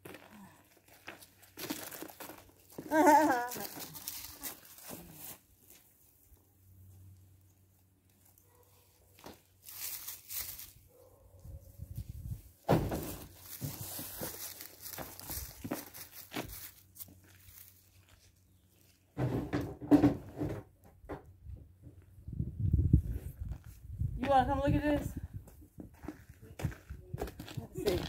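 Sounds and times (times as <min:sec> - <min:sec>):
rustling and dragging: 0:03.5 - 0:20.7
knocks and thunks of objects: 0:12.6 - 0:14.4, 0:19.1 - 0:22.0.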